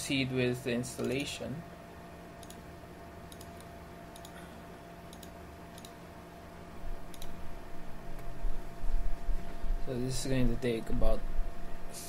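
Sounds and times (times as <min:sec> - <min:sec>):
faint steady hum: 0:00.0 - 0:12.0
computer mouse clicking: 0:01.0 - 0:01.3, 0:02.4 - 0:02.6, 0:03.3 - 0:04.4, 0:05.1 - 0:06.0, 0:07.1 - 0:07.4.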